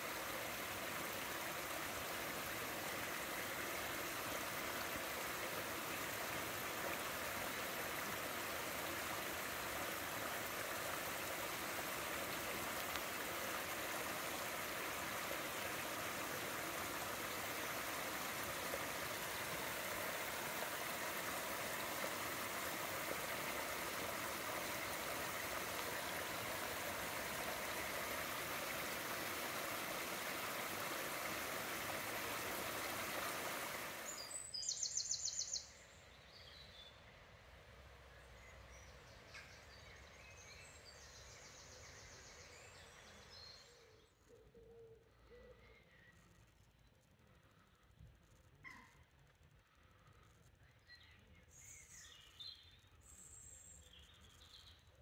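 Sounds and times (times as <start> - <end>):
stream rushing over weir: 0.0 - 34.2.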